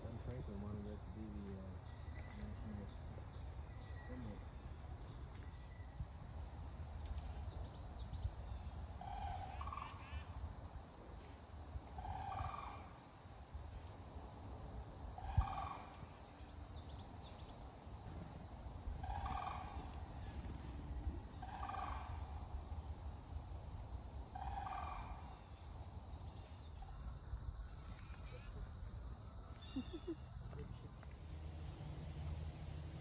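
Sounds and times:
faint small-bird chirps: 0:00.0 - 0:06.4, 0:26.4 - 0:28.7, 0:29.5 - 0:33.0
cranes calling: 0:08.9 - 0:11.2, 0:11.8 - 0:13.2, 0:15.0 - 0:16.7, 0:17.4 - 0:23.2, 0:24.1 - 0:25.7.

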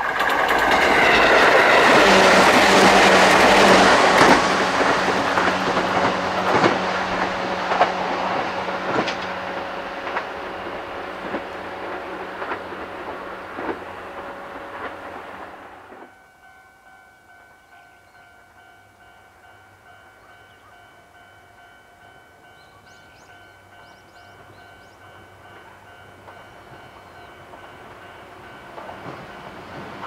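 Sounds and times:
electric train approaching: 0:00.0 - 0:16.5, 0:17.2 - 0:30.0
bird chirps: 0:22.5 - 0:25.1.

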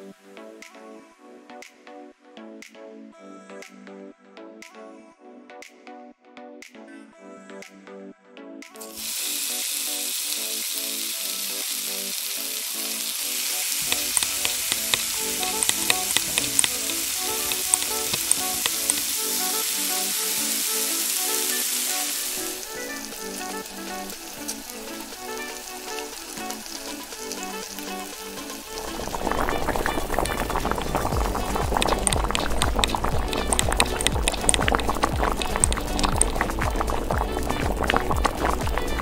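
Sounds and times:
food sizzling in hot oil: 0:08.9 - 0:39.0
crackling pops: 0:13.8 - 0:19.8, 0:21.3 - 0:39.0.

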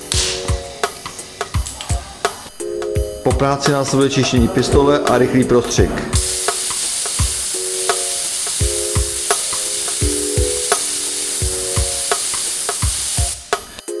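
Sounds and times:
background music with beat: 0:00.0 - 0:14.0
spray gun hissing: 0:06.2 - 0:13.8.

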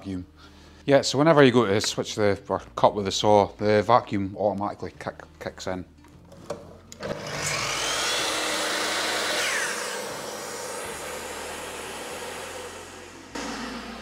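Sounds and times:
dust extractor running: 0:07.0 - 0:14.0
mitre saw motor whine: 0:07.0 - 0:14.0.

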